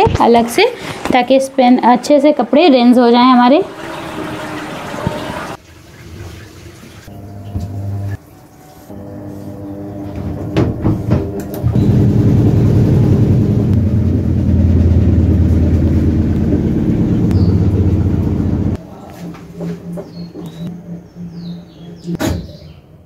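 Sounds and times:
washing machine hum: 0.4 - 22.4
washing machine drum spinning: 2.0 - 18.8.

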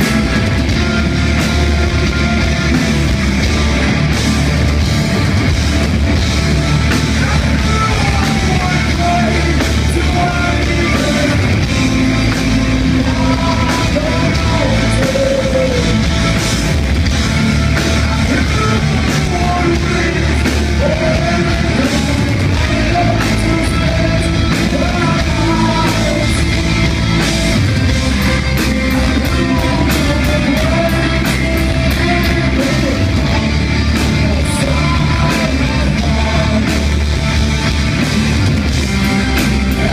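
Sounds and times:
bass guitar: 0.0 - 39.9
distorted electric guitars: 0.0 - 39.9
drums: 0.0 - 39.9
person singing: 6.8 - 16.4, 18.0 - 37.4, 39.3 - 39.9.

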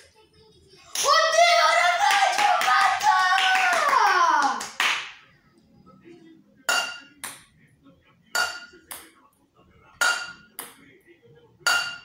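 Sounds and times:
hand clap: 0.9 - 1.2, 1.8 - 5.2
boy shouting: 1.0 - 4.7.

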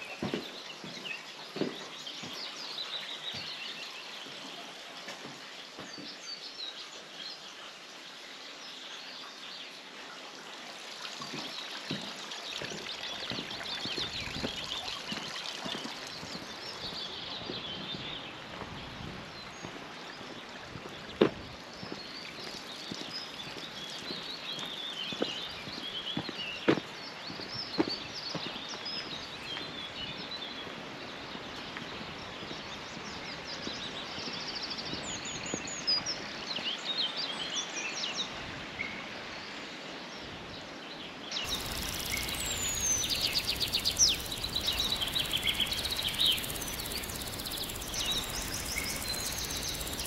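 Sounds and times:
footsteps on stone: 0.0 - 2.6, 11.2 - 29.8
birds chirping and singing: 41.4 - 50.0.

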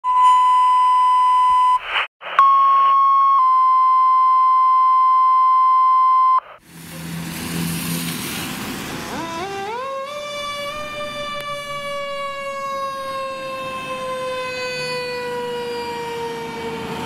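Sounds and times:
radio alert beeps: 0.1 - 6.6
radio static: 1.8 - 3.0, 6.4 - 6.6
street noise: 6.5 - 17.0.

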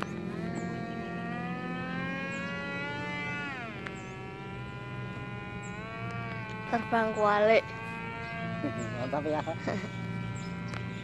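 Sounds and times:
model plane motor whine: 0.0 - 11.0.

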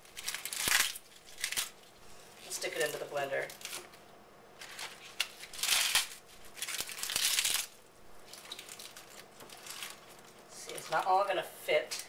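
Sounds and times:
leaves being torn by hand: 0.1 - 1.8, 4.6 - 7.7.

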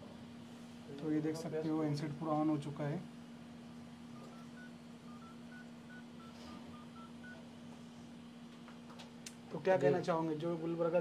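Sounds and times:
phone keypad beeps: 4.2 - 7.4.

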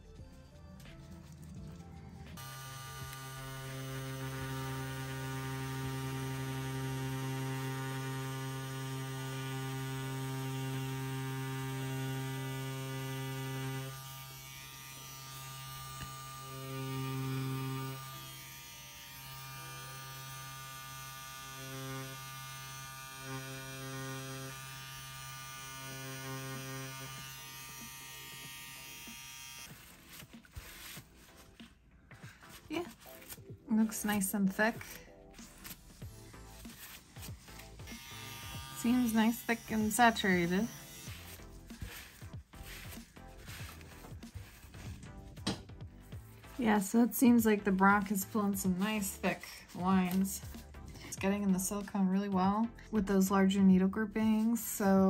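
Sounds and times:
tattoo pen motor humming: 2.4 - 31.0, 34.8 - 45.6.

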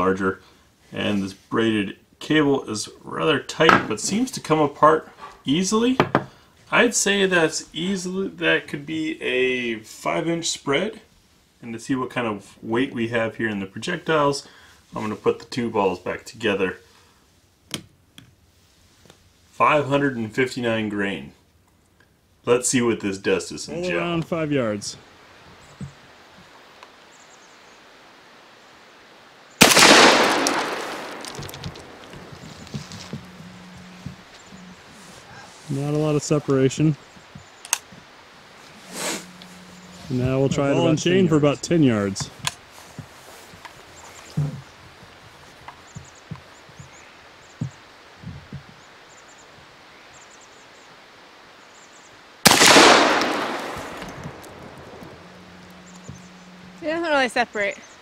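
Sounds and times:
shotgun shot with echo: 29.6 - 32.3, 52.5 - 54.7
faint bird chirps: 32.2 - 42.0, 43.6 - 52.3, 54.9 - 58.0.

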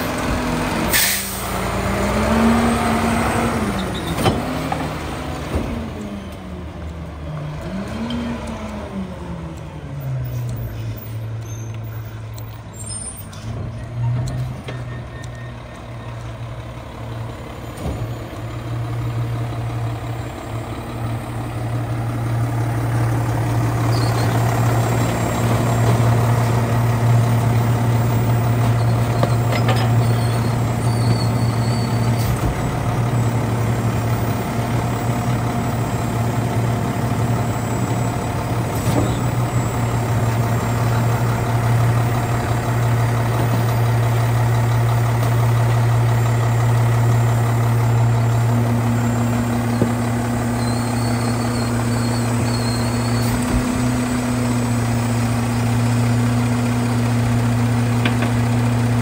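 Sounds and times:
truck engine idling: 9.6 - 59.0.

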